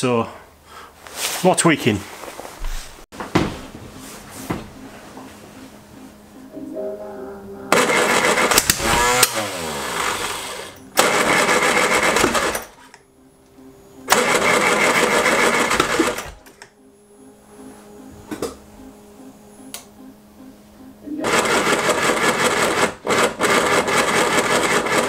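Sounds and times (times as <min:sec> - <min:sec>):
quiet steady hum: 0:01.8 - 0:09.2, 0:16.3 - 0:21.2
car engine cranking on starter: 0:07.7 - 0:13.0, 0:14.1 - 0:16.7, 0:21.2 - 0:25.0.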